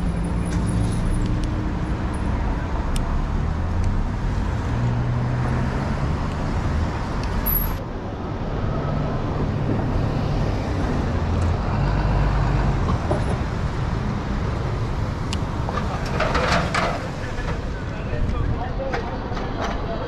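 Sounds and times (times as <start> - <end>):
cars driving past on wet road: 0.4 - 7.6.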